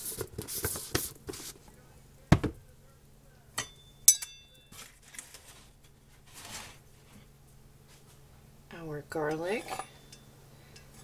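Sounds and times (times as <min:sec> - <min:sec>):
metal spoon clinking: 0:03.6 - 0:04.7, 0:09.6 - 0:11.0
soft rustle: 0:04.8 - 0:08.3.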